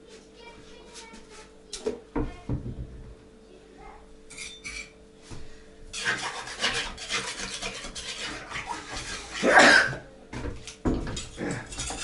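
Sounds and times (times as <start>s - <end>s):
trowel scraping bricks and mortar: 6.0s - 9.5s.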